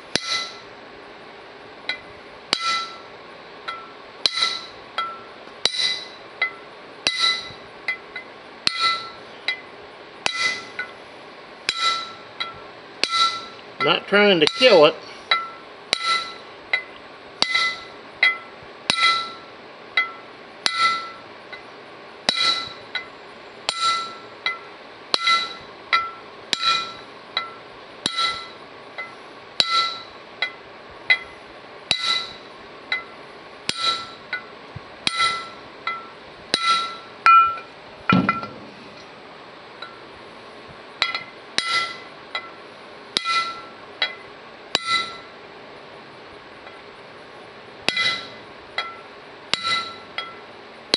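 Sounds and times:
hammer tapping metal punch: 0:01.9 - 0:03.0, 0:03.7 - 0:08.0, 0:08.7 - 0:09.6, 0:11.7 - 0:19.4, 0:20.0 - 0:21.2, 0:23.7 - 0:24.6, 0:25.2 - 0:31.3, 0:31.9 - 0:33.1, 0:33.7 - 0:39.1, 0:43.2 - 0:44.2, 0:44.8 - 0:45.3, 0:47.9 - 0:50.4.

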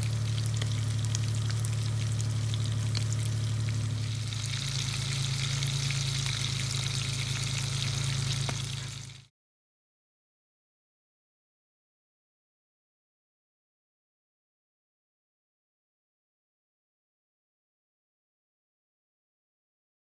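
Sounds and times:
fish sizzling in hot oil: 0:00.0 - 0:09.3
low hum: 0:00.0 - 0:09.3.

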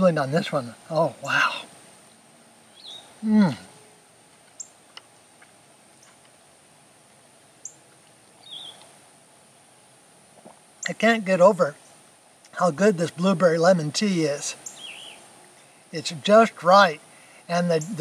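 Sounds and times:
faint high hiss: 0:00.0 - 0:18.0
man humming with enjoyment: 0:03.2 - 0:03.9.

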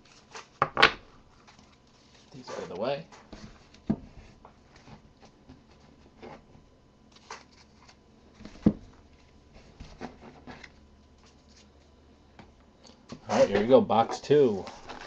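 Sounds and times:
cards and packaging handled: 0:07.1 - 0:12.0.

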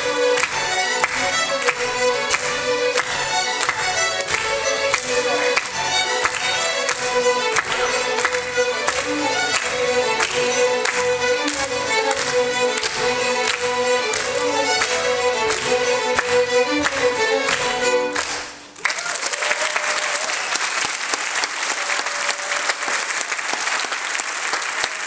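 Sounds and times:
string ensemble playing fiddle tune: 0:00.0 - 0:18.8
audience applause: 0:00.0 - 0:25.0.

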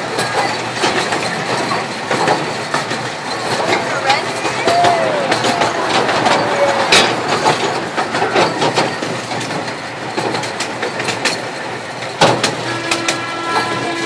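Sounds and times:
miniature train rattling on track: 0:00.0 - 0:14.0
wheels clacking and knocking: 0:00.0 - 0:14.0.

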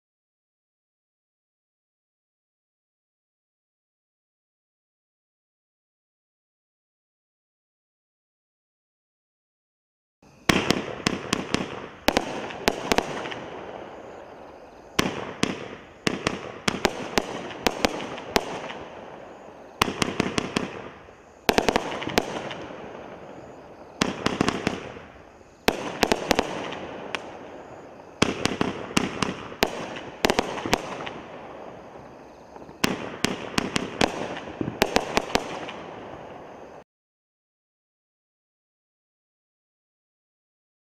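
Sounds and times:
firework bangs: 0:10.4 - 0:36.8.

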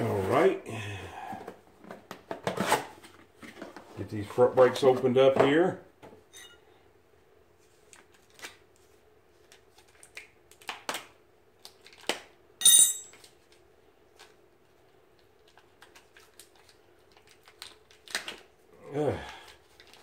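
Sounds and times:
sharp ringing clink: 0:06.3 - 0:06.6, 0:12.6 - 0:13.2
package rustling and clicks: 0:09.4 - 0:12.3, 0:15.1 - 0:18.5, 0:19.4 - 0:20.0.

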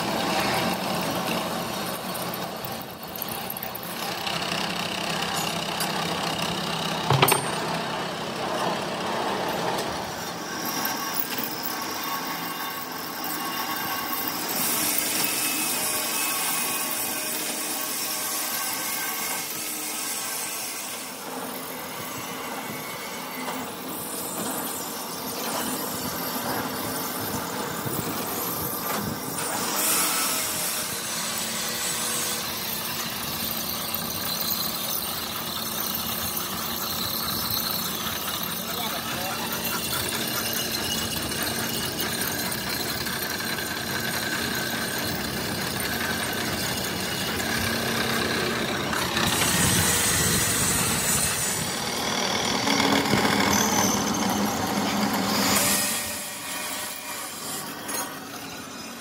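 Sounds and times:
machining equipment running: 0:00.0 - 0:59.0
high thin squealing: 0:29.2 - 0:59.0.

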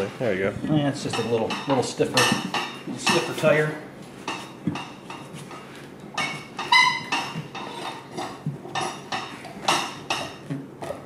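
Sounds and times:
metal clinks and knocks: 0:04.2 - 0:10.5
tire bead scraping and squeaking: 0:06.4 - 0:08.4.

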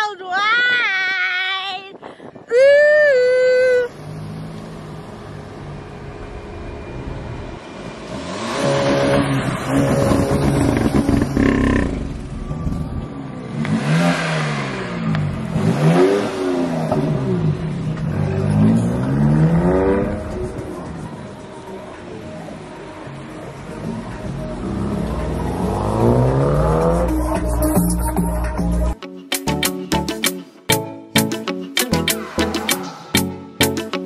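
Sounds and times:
car engine revving: 0:03.9 - 0:12.4, 0:13.4 - 0:21.7, 0:23.4 - 0:27.8.

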